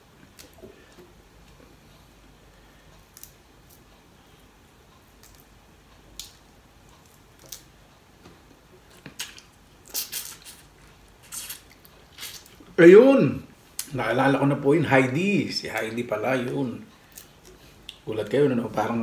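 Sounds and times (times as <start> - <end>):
prawn shell cracking and peeling: 7.0 - 7.7.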